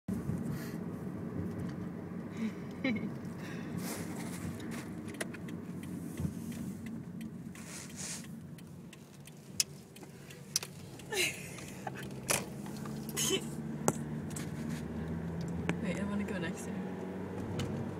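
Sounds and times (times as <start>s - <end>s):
car engine hum: 0.1s - 17.9s
road noise: 0.1s - 17.9s
sharp clicks: 8.2s - 12.6s.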